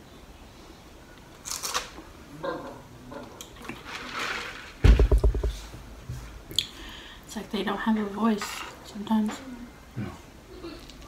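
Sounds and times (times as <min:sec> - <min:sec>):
cup thumping on table: 0:04.8 - 0:05.6.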